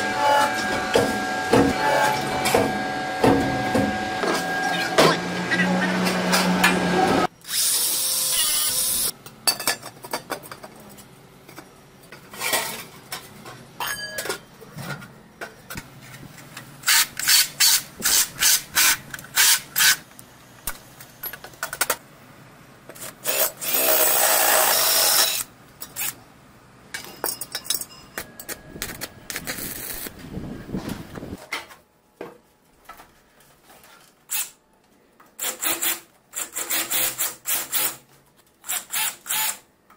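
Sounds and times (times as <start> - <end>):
cordless drill running: 7.5 - 9.1.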